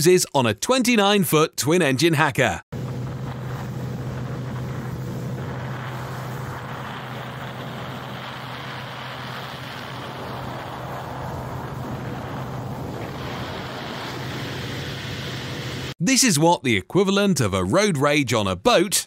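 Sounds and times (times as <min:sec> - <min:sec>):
motorboat engine droning: 0:02.7 - 0:15.9
wind buffeting microphone: 0:02.8 - 0:15.7.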